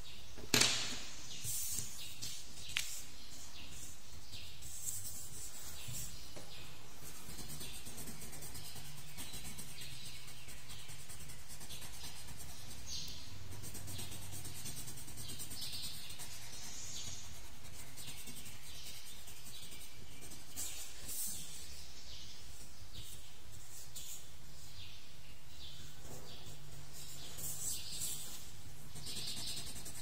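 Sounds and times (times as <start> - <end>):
pencil scratching on paper: 3.7 - 6.3, 7.0 - 21.8, 26.3 - 30.0.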